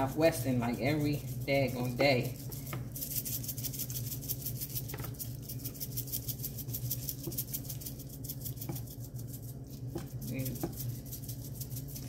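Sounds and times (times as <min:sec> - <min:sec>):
seasoning shaker rattling: 0:00.0 - 0:12.0
steady low hum: 0:00.0 - 0:12.0.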